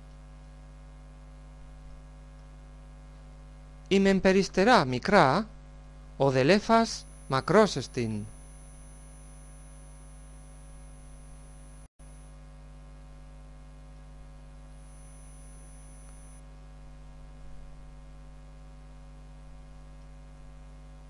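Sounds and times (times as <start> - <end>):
electrical mains hum: 0.0 - 21.0.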